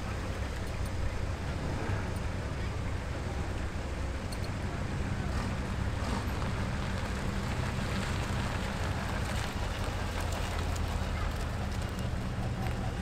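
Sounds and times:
car engines humming: 0.0 - 13.0.

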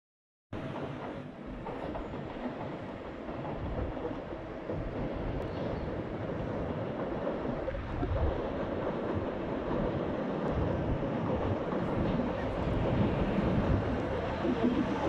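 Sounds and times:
freight train running past: 0.6 - 15.0
wind on microphone: 3.4 - 15.0.

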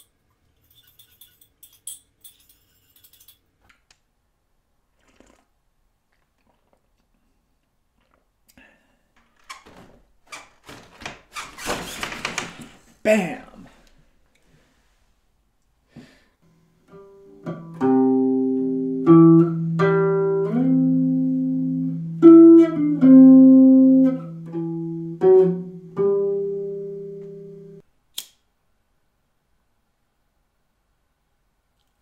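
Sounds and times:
electric bass guitar plucked: 16.9 - 27.8
sharp click: 28.1 - 28.4.

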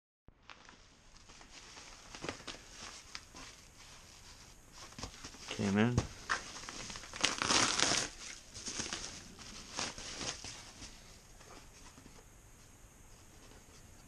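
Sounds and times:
paper mailer crinkling: 0.5 - 3.5, 6.3 - 11.4.

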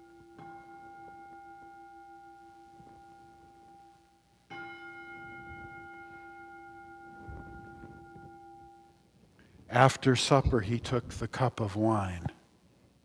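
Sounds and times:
altar bell ringing: 0.0 - 9.1.

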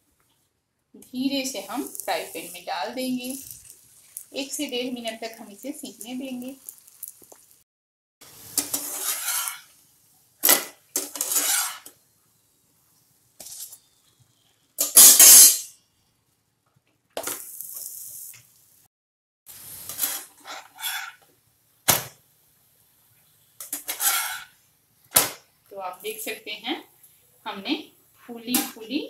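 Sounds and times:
hot oil sizzling: 1.0 - 7.6, 8.2 - 12.1, 14.8 - 15.7, 17.2 - 18.9, 19.5 - 29.0
metal spatula scraping frying pan: 8.5 - 9.8, 10.4 - 11.9, 14.8 - 15.7, 19.8 - 21.2, 23.6 - 24.6.

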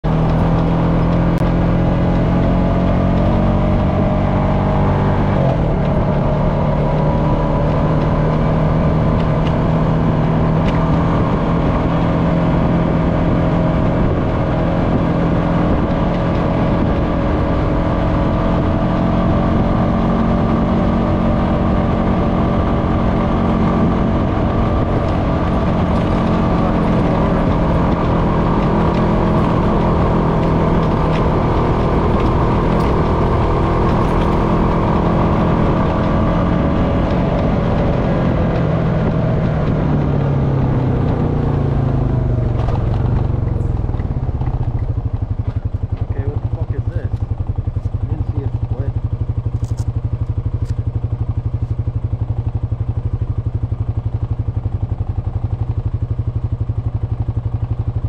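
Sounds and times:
atv engine running: 0.0 - 58.0.

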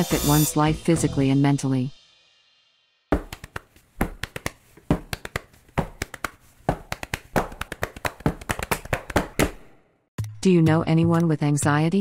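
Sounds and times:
sharp taps and clicks: 3.1 - 9.6.

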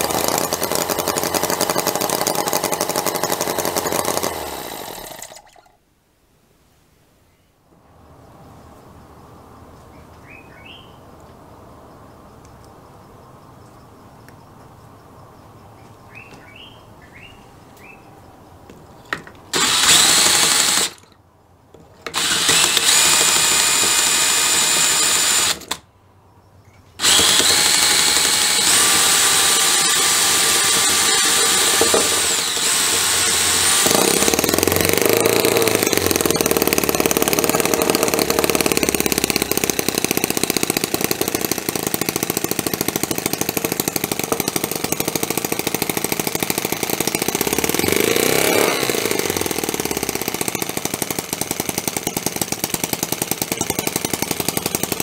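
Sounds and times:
small model engine running: 0.0 - 5.6, 19.6 - 21.0, 22.2 - 25.8, 27.0 - 55.0
cordless drill whine: 19.6 - 21.0, 22.1 - 25.8, 27.0 - 51.4.

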